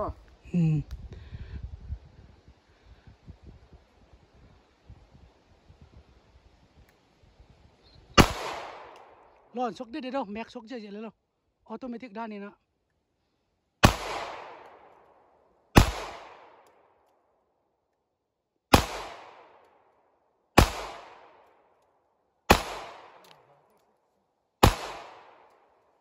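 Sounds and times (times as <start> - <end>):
pistol shots with echo: 8.2 - 9.3, 13.8 - 15.0, 15.8 - 16.7, 18.7 - 19.7, 20.6 - 21.5, 22.5 - 23.4, 24.6 - 25.7.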